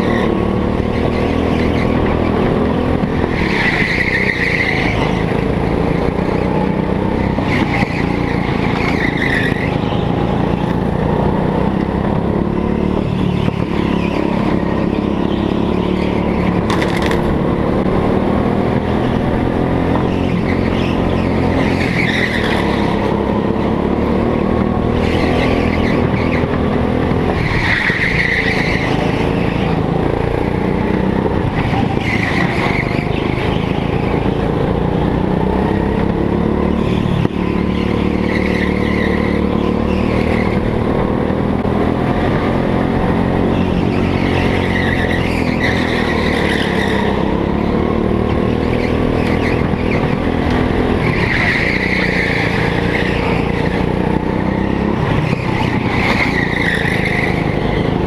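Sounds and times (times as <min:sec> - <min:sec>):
go-kart engine running hard: 0:00.0 - 0:58.0
tyres squealing: 0:43.3 - 0:47.8, 0:48.5 - 0:58.0.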